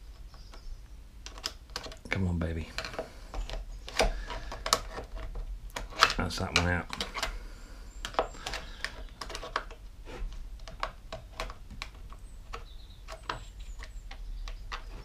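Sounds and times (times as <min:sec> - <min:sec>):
screwdriver clicking on plastic: 0:01.2 - 0:02.0.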